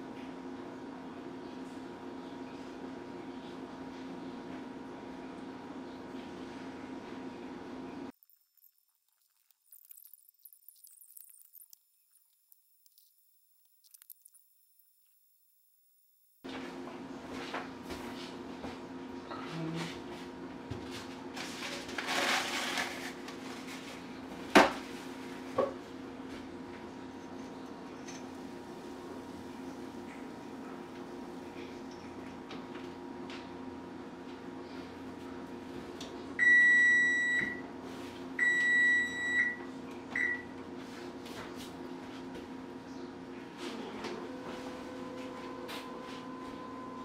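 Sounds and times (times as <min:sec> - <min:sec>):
paper towel rustling: 0:21.0 - 0:24.1.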